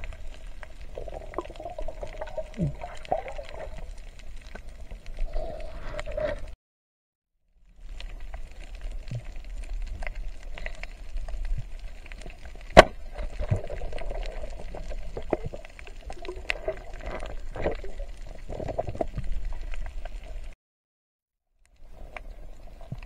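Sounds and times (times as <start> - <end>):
low underwater rumble: 0.0 - 6.5
crackling clicks: 0.0 - 6.6, 7.8 - 20.6, 21.6 - 23.0.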